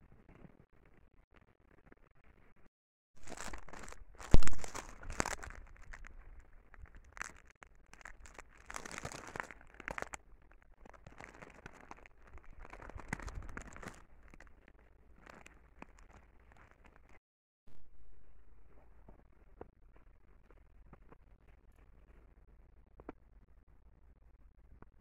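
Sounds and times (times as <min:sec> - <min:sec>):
crackling and rustling: 0:00.0 - 0:17.2.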